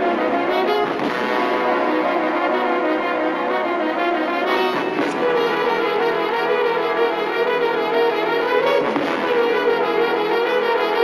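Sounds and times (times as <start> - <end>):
brass orchestral music: 0.0 - 11.0.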